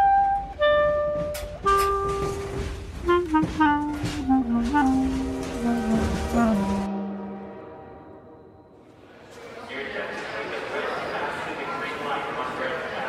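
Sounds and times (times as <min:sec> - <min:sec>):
clarinet slow melody: 0:00.0 - 0:08.6.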